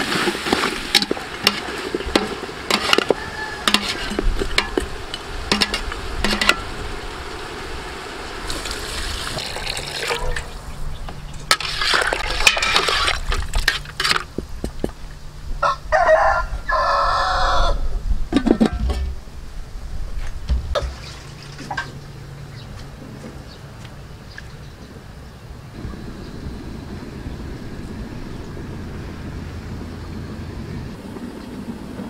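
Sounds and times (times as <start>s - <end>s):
rooster crowing: 2.8s - 4.3s, 15.6s - 17.9s
liquid sloshing: 8.5s - 10.6s, 11.5s - 14.0s.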